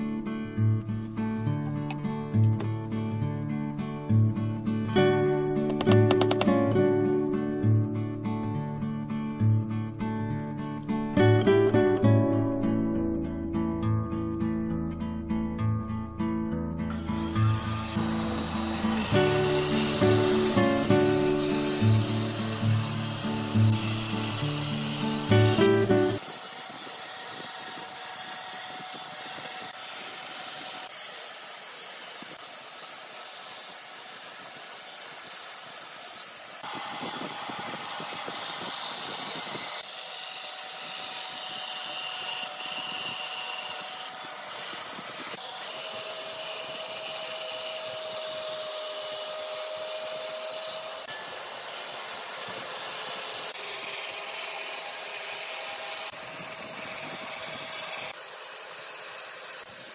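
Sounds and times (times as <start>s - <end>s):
band saw cutting wood: 4.6s - 7.5s, 16.9s - 59.9s.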